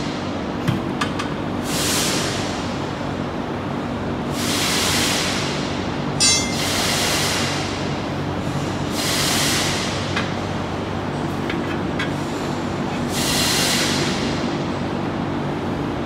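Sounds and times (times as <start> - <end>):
hiss: 4.3 - 5.6, 13.1 - 14.4
steady hum: 5.8 - 8.5
ringing metal clang: 6.2 - 6.8.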